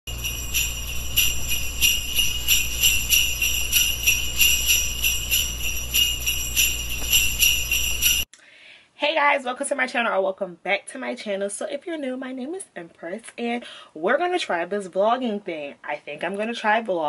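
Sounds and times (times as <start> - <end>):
jingle bells shaken: 0.1 - 8.3.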